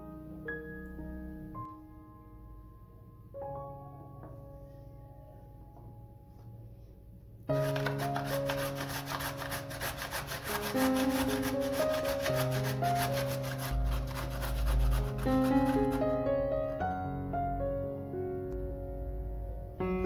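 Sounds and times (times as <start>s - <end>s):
soft background music: 0.0s - 20.0s
carrot rasping on grater: 7.6s - 16.2s.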